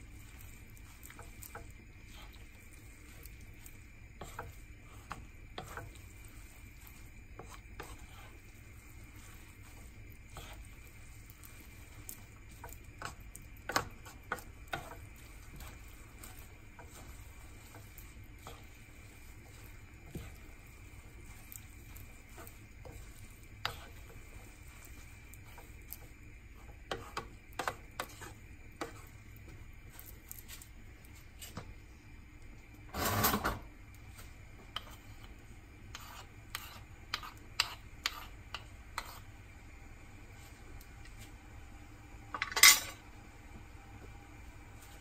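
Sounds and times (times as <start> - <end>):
wooden spatula stirring in wok: 0.0 - 41.4, 43.5 - 45.0
faint sizzle: 0.0 - 45.0
steady low hum: 0.0 - 45.0.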